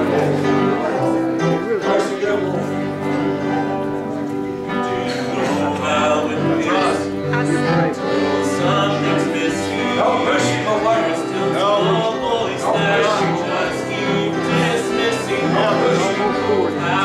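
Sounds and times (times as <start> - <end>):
instrumental backing: 0.0 - 17.0
voices singing along: 4.7 - 17.0
man singing gospel song: 4.8 - 7.2, 8.0 - 17.0.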